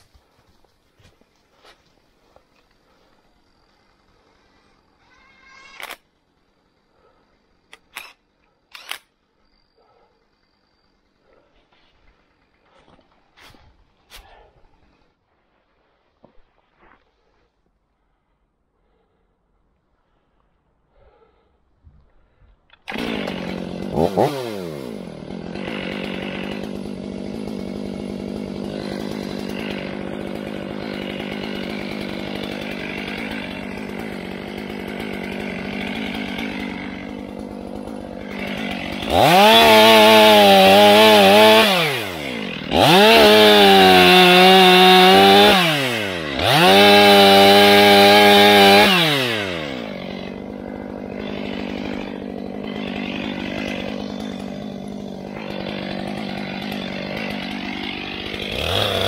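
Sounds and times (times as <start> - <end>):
chainsaw idling: 0.0 - 5.1, 22.8 - 59.0
chainsaw cutting into log: 7.7 - 9.1, 22.8 - 59.0.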